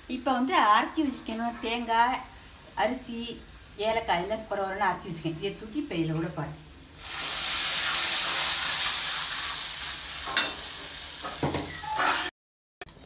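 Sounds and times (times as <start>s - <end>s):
paste sizzling in hot pan: 6.7s - 11.5s
ladle clinking on pan: 10.3s - 10.7s.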